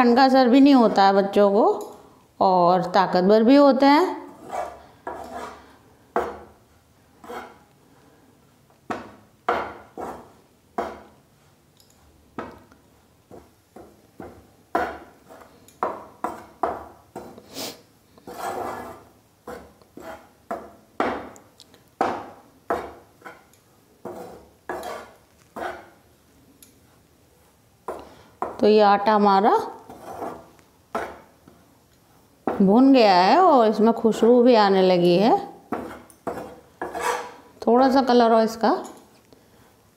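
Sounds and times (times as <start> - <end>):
metal spoon scraping frying pan: 17.2 - 20.7, 22.8 - 26.0, 29.8 - 31.3, 35.8 - 37.5.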